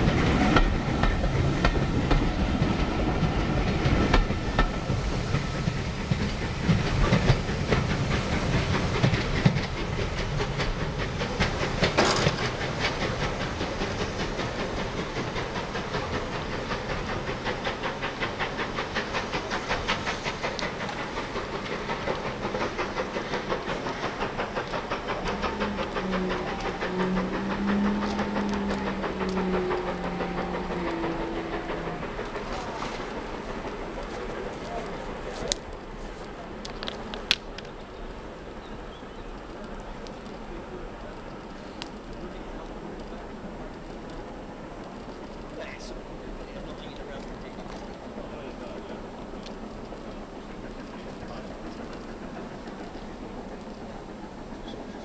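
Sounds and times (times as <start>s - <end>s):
steam hissing: 0.0s - 55.0s
train coaches clattering over rails: 0.0s - 55.0s.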